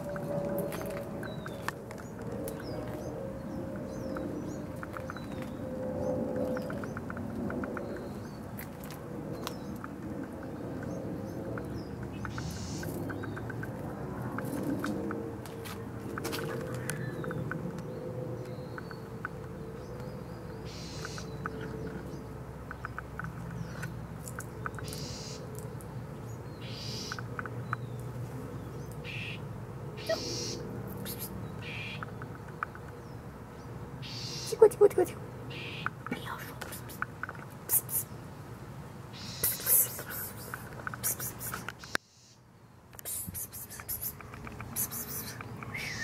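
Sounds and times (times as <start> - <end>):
small birds chirping: 0.0 - 38.5, 39.1 - 46.0
bird chirps: 10.8 - 13.7, 16.8 - 25.5, 26.3 - 28.0, 30.0 - 32.8, 34.0 - 34.7, 35.5 - 37.0, 43.1 - 46.0.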